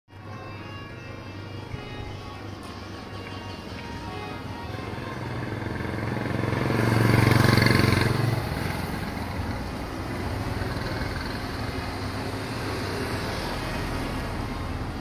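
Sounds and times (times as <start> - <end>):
vehicle engine passing by: 4.0 - 15.0.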